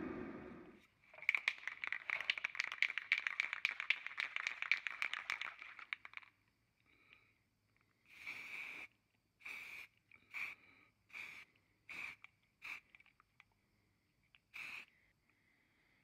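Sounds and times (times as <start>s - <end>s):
spray paint can rattling: 1.1s - 6.4s, 8.1s - 10.5s, 11.1s - 13.5s, 14.5s - 14.8s.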